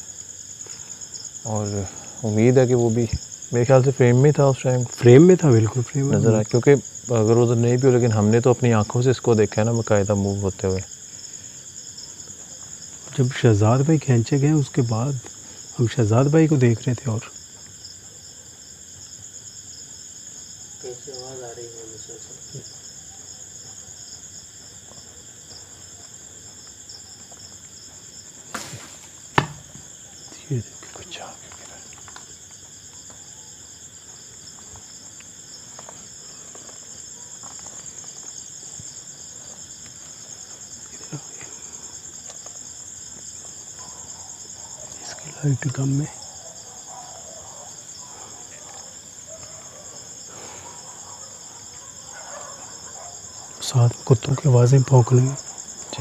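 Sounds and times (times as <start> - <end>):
crickets chirping: 0.0 - 56.0
sharp knocks: 28.5 - 29.9.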